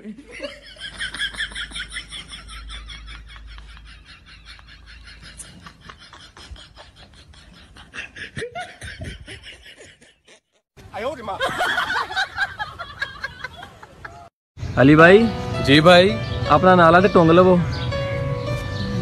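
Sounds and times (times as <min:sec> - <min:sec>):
laughter in quick pulses: 0:00.2 - 0:10.6.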